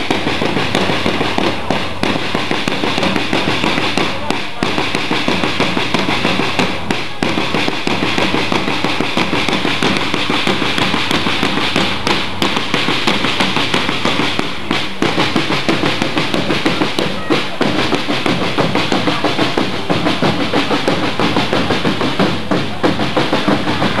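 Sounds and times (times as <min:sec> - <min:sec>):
parade drums beating: 0:00.0 - 0:24.0.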